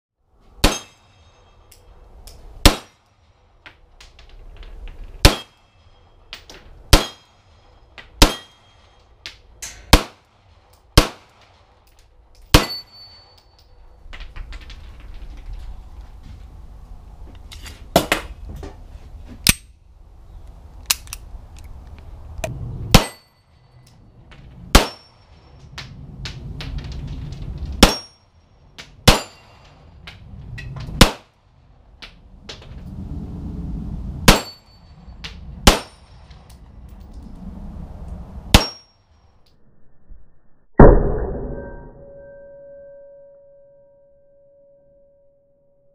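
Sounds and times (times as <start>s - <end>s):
metallic ring of steel target: 0.6s - 2.0s, 5.2s - 10.1s, 11.9s - 14.1s, 22.9s - 24.1s, 24.7s - 25.5s, 27.8s - 28.4s, 29.0s - 29.9s, 34.3s - 36.3s, 38.5s - 39.0s, 40.8s - 45.6s
pistol shots: 2.6s - 2.9s, 5.2s - 5.6s, 6.9s - 7.3s, 8.2s - 8.6s, 9.9s - 10.2s, 11.0s - 11.3s, 24.7s - 25.0s, 27.8s - 28.1s, 31.0s - 31.3s, 35.6s - 35.9s, 38.5s - 38.8s.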